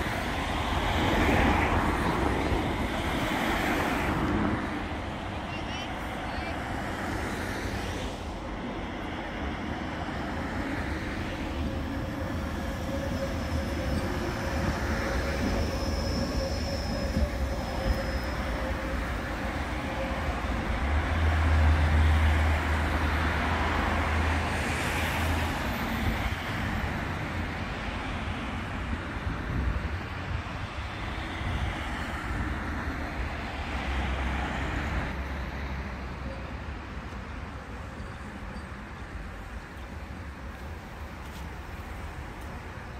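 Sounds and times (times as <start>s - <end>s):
tram rumbling on rails: 0.0s - 42.9s
high wheel squeal: 11.3s - 20.7s.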